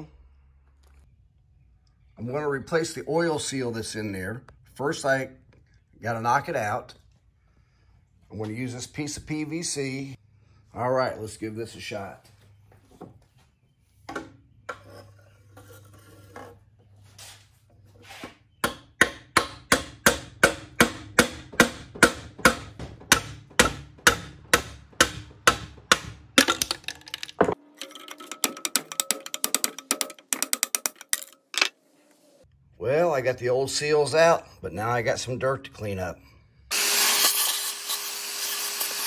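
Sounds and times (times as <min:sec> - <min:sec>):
hammer striking pipe: 0:18.6 - 0:26.7.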